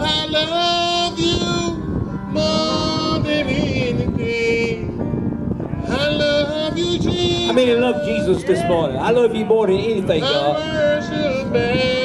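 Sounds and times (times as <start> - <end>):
person singing worship song: 0.0 - 12.0.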